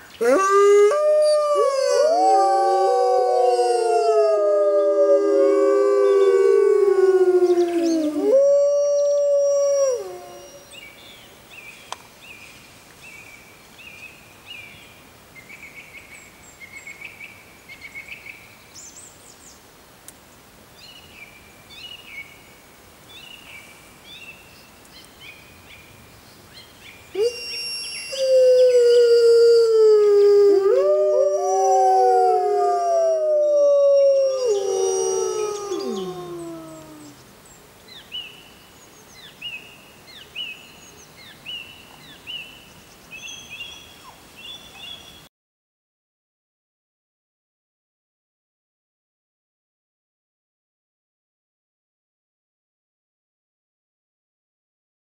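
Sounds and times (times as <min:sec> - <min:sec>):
wolves howling in chorus: 0:00.2 - 0:10.6, 0:28.2 - 0:37.2.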